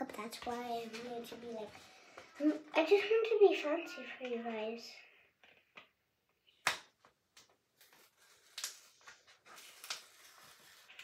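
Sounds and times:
paper sticker sheet crinkling: 7.8 - 11.0.

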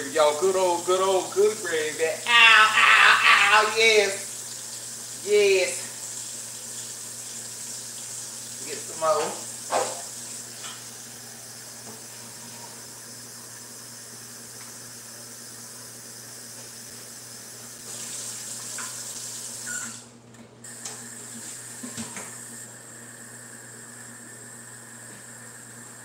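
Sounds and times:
tap water running into plastic cup: 17.8 - 19.8.

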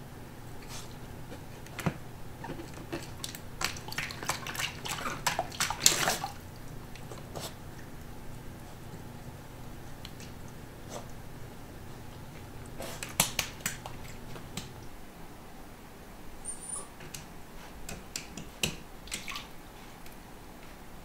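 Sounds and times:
dog splashing in water bowl: 2.4 - 8.0, 12.2 - 14.8, 19.0 - 19.5.

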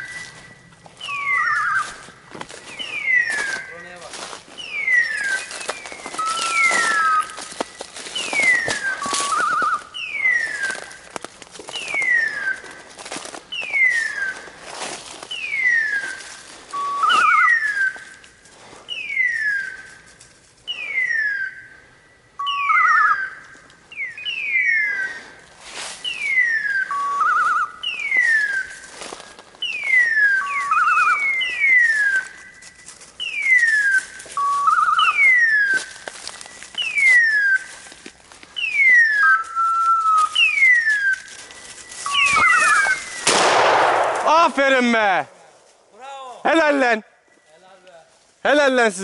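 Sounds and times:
warbling beep: 42.1 - 43.1.

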